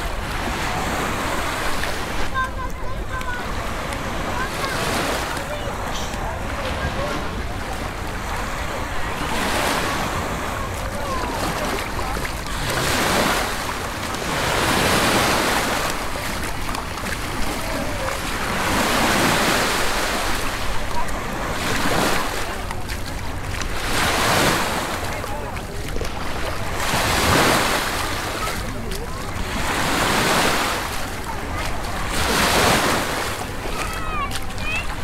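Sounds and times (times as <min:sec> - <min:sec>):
small waves washing up shore: 0:00.0 - 0:35.0.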